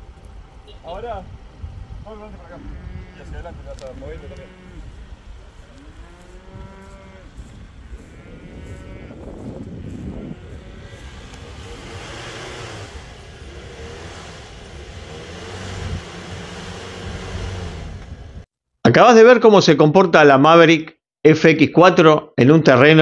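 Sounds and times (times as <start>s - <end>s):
vehicle engine running: 0.0s - 18.4s
cattle mooing: 2.6s - 5.0s, 5.7s - 12.6s
rushing noise: 8.8s - 18.4s.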